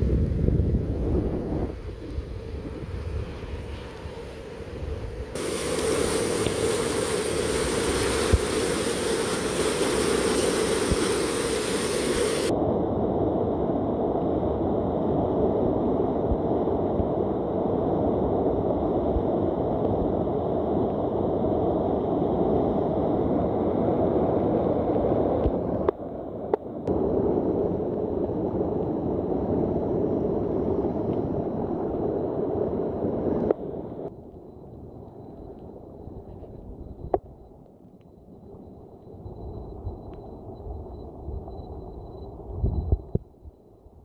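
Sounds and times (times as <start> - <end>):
heavy rain pouring: 5.4 - 12.5.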